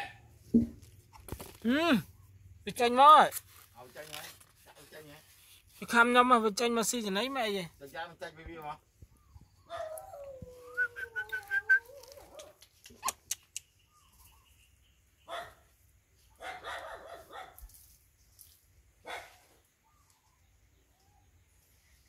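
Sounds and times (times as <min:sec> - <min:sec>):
puppy whining: 0:09.2 - 0:13.4
puppy barking: 0:15.3 - 0:15.7, 0:16.4 - 0:17.6, 0:19.0 - 0:19.4.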